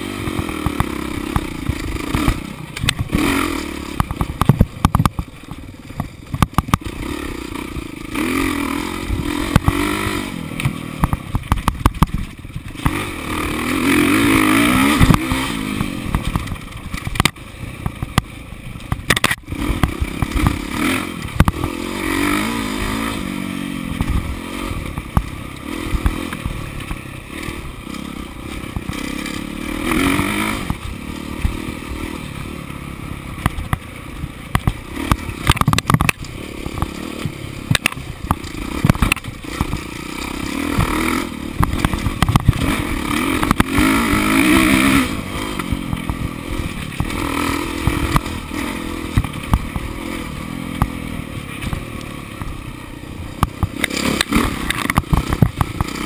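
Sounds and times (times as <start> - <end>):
dirt bike engine revving: 0.0 - 56.0
bike knocking on rough ground: 0.3 - 3.3, 3.9 - 7.0, 9.4 - 13.1, 14.8 - 20.7, 24.0 - 27.1, 28.5 - 29.4, 33.3 - 45.0, 47.8 - 50.1, 53.3 - 56.0.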